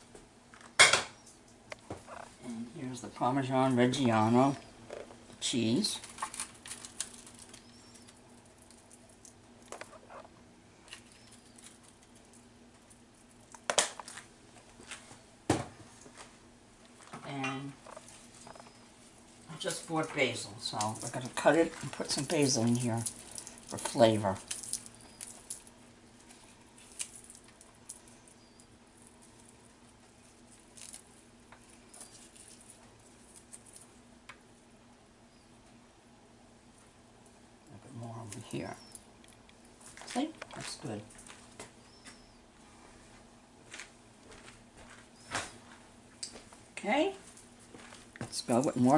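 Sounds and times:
faint steady hum: 0:00.0 - 0:48.9
leaves rustling: 0:18.0 - 0:34.6
grated cheese pattering: 0:20.6 - 0:34.0.

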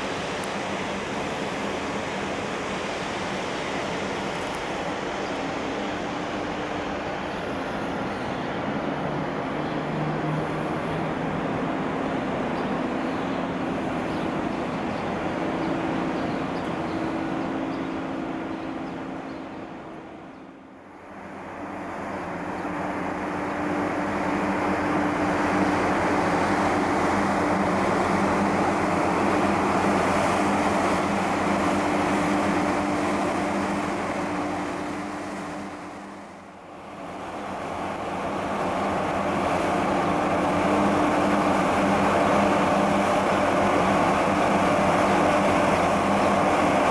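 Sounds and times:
ship engine hum: 0:00.0 - 0:46.9.

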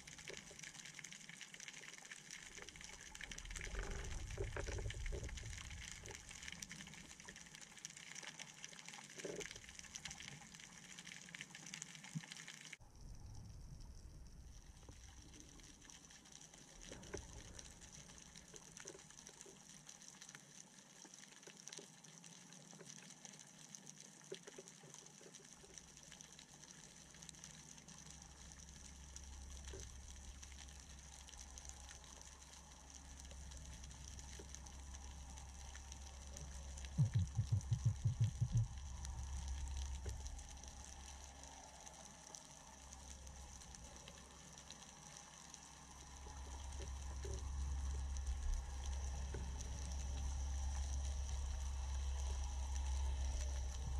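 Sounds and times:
low rumble: 0:02.7 - 0:07.1, 0:12.8 - 0:15.7, 0:28.2 - 0:44.8, 0:45.6 - 0:53.9.

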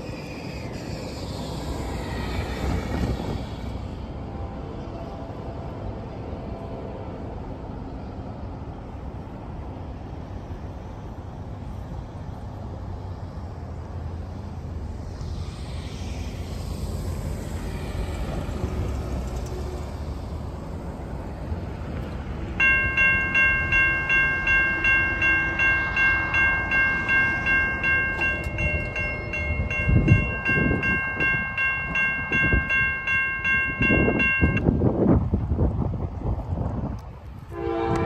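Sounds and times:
railroad crossing warning bell: 0:22.5 - 0:34.8.

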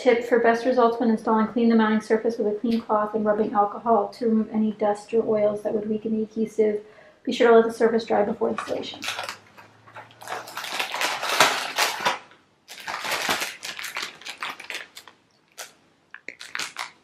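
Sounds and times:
foil pouch crinkling: 0:08.6 - 0:17.0.

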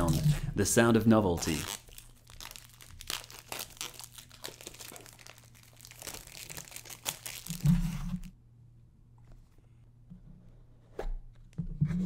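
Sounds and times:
plastic wrap crinkling: 0:00.0 - 0:00.5, 0:01.3 - 0:08.3.

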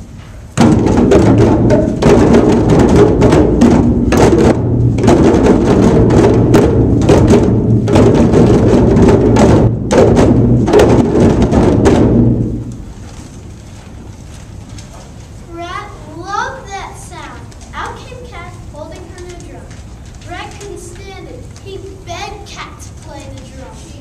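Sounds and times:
djembe drums playing: 0:00.6 - 0:12.9.

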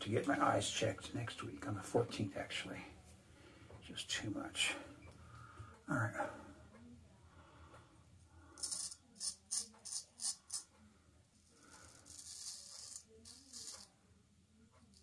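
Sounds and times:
razor scraping through beard: 0:08.6 - 0:10.7, 0:11.4 - 0:13.9.

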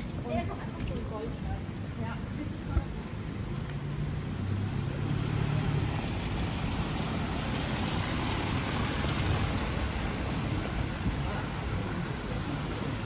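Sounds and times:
rain hissing on street: 0:00.0 - 0:13.0.

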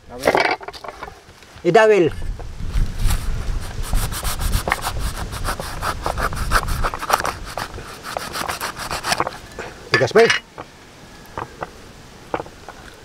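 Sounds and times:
knife scraping fish skin: 0:03.7 - 0:09.4.

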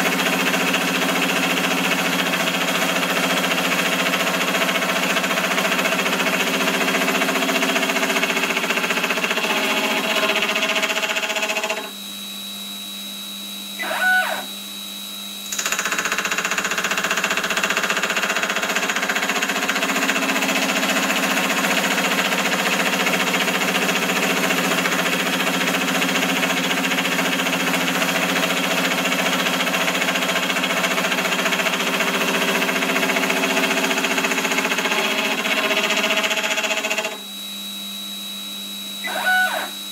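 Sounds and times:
milling cutter machining whine: 0:00.0 - 0:39.9
motor humming: 0:07.8 - 0:15.7, 0:31.2 - 0:39.9.

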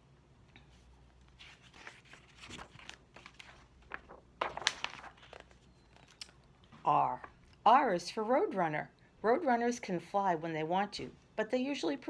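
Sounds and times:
paper pages rustling: 0:00.7 - 0:06.4.

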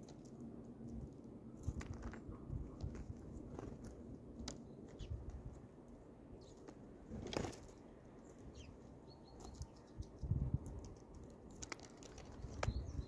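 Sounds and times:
wingbeats and landings: 0:00.0 - 0:13.0
birds pecking on tray: 0:10.6 - 0:12.8.

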